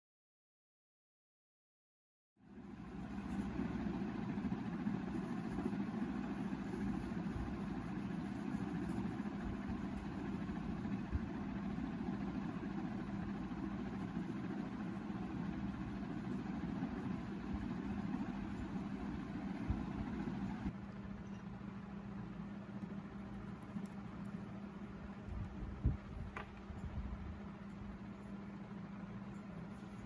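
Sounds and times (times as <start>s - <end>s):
low mechanical hum: 2.4s - 30.0s.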